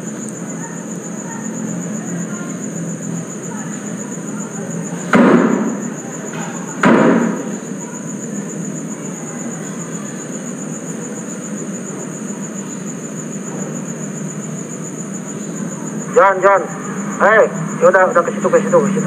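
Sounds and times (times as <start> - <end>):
constant hiss: 0.0 - 19.0
insects trilling: 0.0 - 19.0
loud sudden knock: 5.1 - 7.6.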